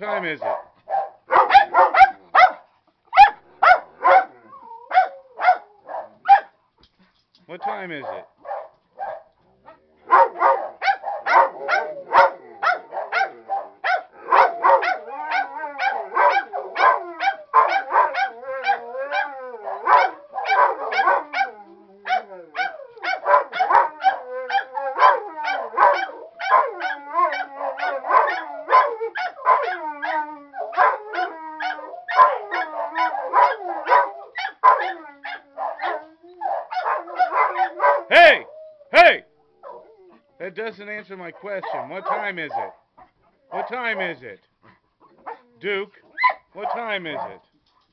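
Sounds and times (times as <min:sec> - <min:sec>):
dogs barking and yipping: 0:00.4 - 0:06.6, 0:07.6 - 0:39.0, 0:39.6 - 0:40.3, 0:40.9 - 0:44.2, 0:45.0 - 0:47.9
dogs howling: 0:03.6 - 0:06.2, 0:10.1 - 0:39.0, 0:39.6 - 0:40.3.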